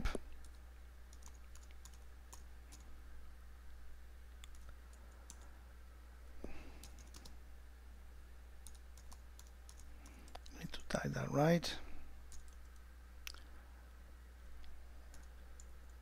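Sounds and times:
steady low hum: 0:00.0 - 0:16.0
keyboard typing: 0:00.4 - 0:02.9, 0:04.4 - 0:05.5, 0:06.8 - 0:07.4, 0:08.6 - 0:10.5, 0:12.3 - 0:12.9, 0:15.0 - 0:16.0.

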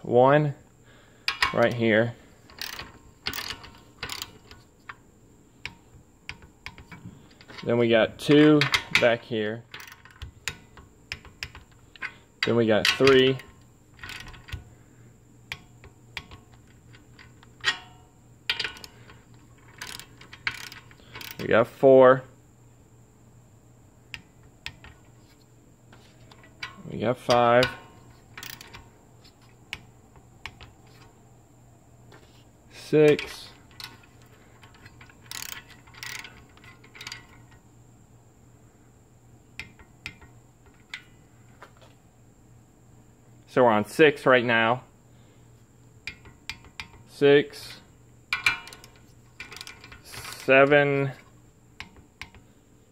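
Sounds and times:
torque wrench clicking: 0:02.5 - 0:05.0, 0:09.7 - 0:14.6, 0:15.5 - 0:21.5, 0:26.3 - 0:28.9, 0:33.0 - 0:37.4, 0:48.3 - 0:50.8.

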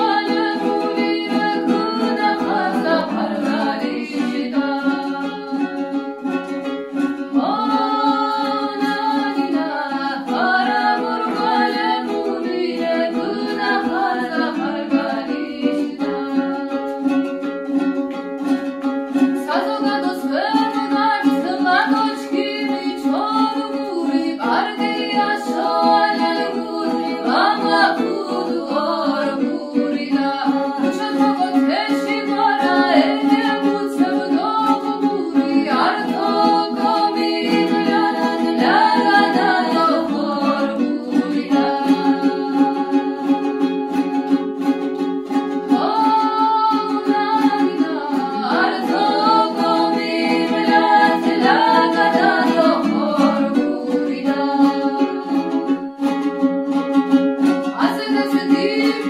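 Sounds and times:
women singing: 0:00.0 - 0:17.5, 0:18.4 - 0:44.6, 0:45.2 - 0:59.0
plucked lute: 0:00.0 - 0:59.0.

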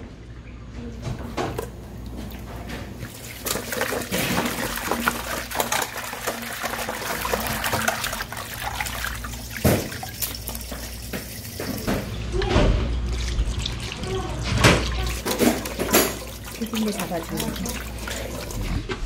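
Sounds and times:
hands swishing fish in water: 0:03.1 - 0:11.9
hose water pouring into bowl: 0:03.1 - 0:12.0, 0:13.0 - 0:18.9.

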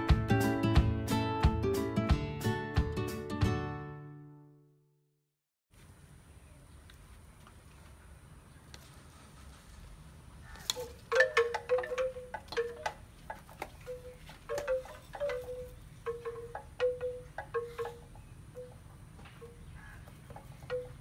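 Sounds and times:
wind chime ringing: 0:10.9 - 0:13.0, 0:13.8 - 0:18.8.

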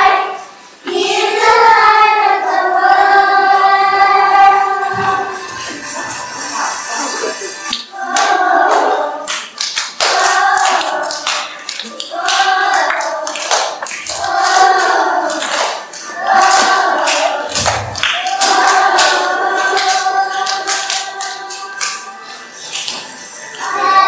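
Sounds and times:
children singing: 0:00.0 - 0:24.0
hand claps: 0:07.7 - 0:22.1.

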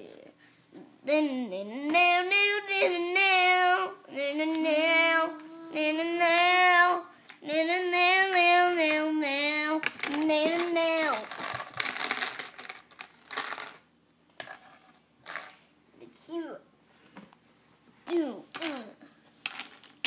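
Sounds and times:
child singing: 0:01.0 - 0:11.3.

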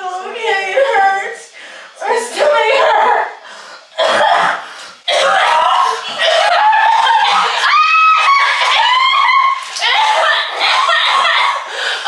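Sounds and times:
woman retching and gagging: 0:04.0 - 0:08.8
woman straining with a cry: 0:05.1 - 0:11.7.

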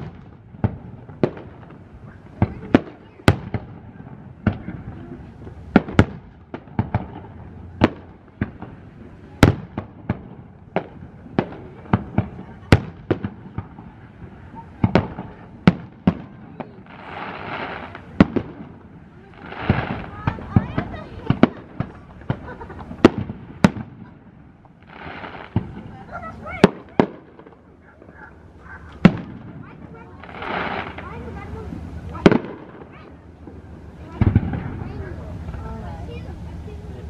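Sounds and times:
firework shells bursting: 0:00.0 - 0:35.6
firework hissing: 0:00.0 - 0:37.0.

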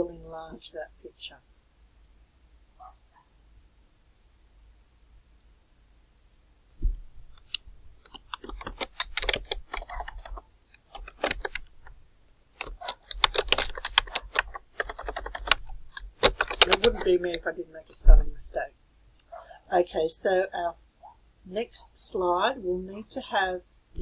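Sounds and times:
low thump: 0:06.8 - 0:07.3
keyboard typing: 0:07.3 - 0:12.0, 0:12.6 - 0:18.6.

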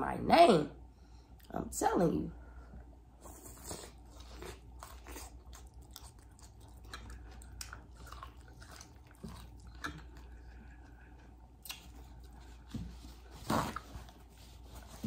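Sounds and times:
wet chewing: 0:03.2 - 0:12.7.

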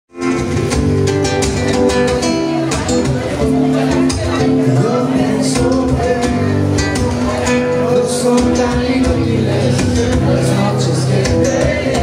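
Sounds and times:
acoustic guitar: 0:00.1 - 0:12.0
man singing into a microphone: 0:03.7 - 0:12.0.

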